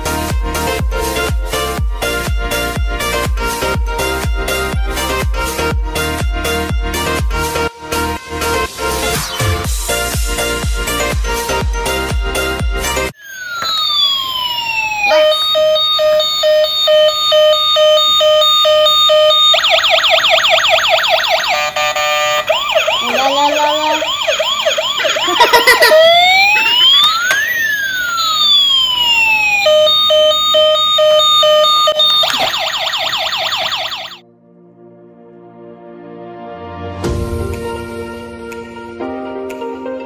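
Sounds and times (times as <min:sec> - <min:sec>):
toy siren sounds: 0:13.2 - 0:34.2.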